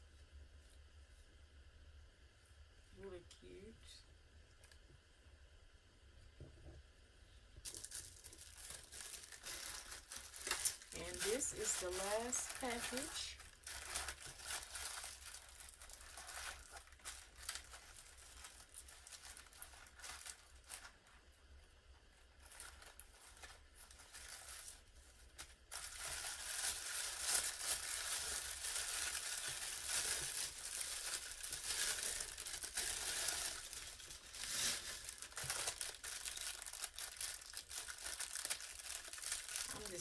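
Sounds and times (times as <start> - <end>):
plastic bag crinkling: 7.6 - 40.0
plastic mailer bag tearing: 7.7 - 21.0, 22.4 - 40.0.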